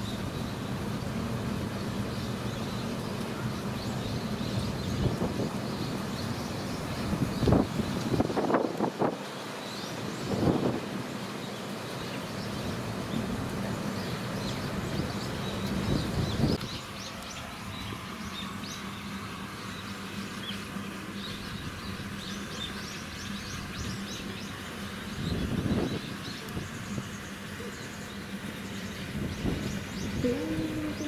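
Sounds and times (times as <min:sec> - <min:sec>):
small birds chirping: 0:00.0 - 0:08.6, 0:11.1 - 0:31.0
faint steady hum: 0:09.4 - 0:31.0
low rumbling noise: 0:23.2 - 0:31.0.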